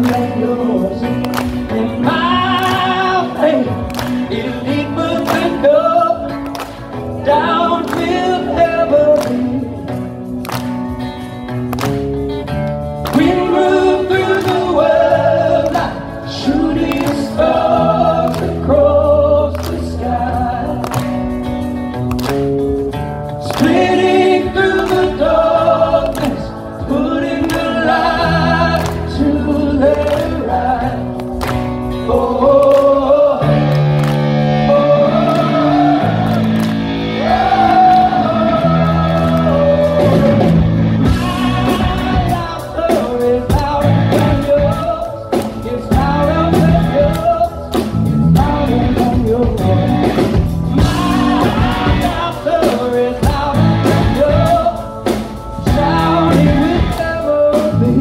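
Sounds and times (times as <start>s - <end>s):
person singing: 0.0s - 6.4s, 13.1s - 21.0s, 32.0s - 58.0s
live rock band playing: 0.0s - 58.0s.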